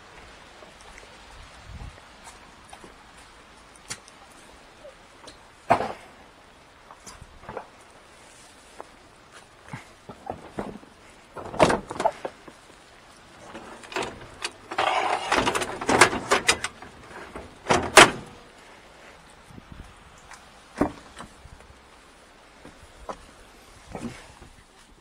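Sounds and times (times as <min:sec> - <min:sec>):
noisy scraping: 0:13.3 - 0:18.5
gear knocking and clattering: 0:13.4 - 0:18.4.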